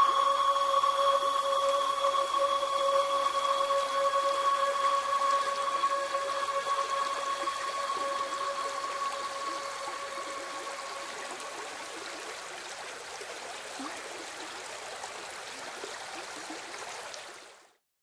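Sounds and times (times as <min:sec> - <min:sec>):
faint two-note hum: 0:00.0 - 0:11.6.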